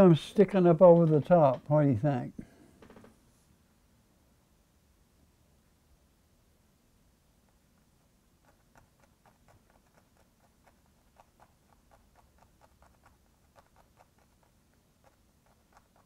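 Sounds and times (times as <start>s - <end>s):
paintbrush dabbing on canvas: 8.2s - 16.0s.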